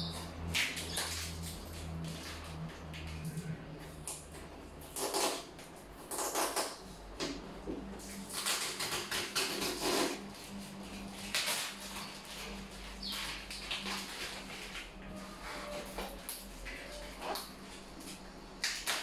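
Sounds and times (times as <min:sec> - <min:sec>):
plastic shrink-wrap crinkling: 0:11.0 - 0:19.0.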